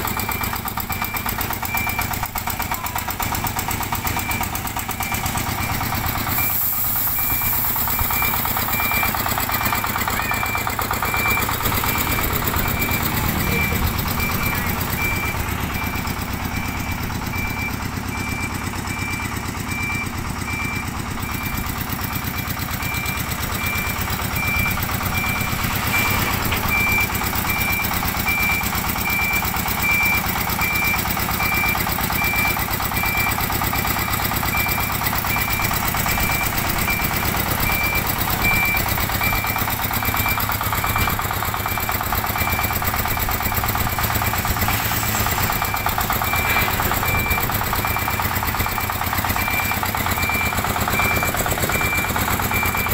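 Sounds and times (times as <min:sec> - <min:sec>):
diesel truck engine running: 0:00.0 - 0:52.9
high electronic beeper: 0:43.5 - 0:52.9.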